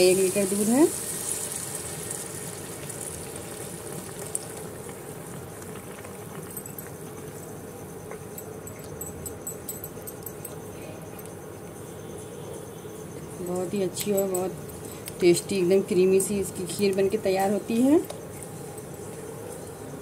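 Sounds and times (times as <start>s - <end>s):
milk splashing and sizzling in pan: 0.0s - 7.2s.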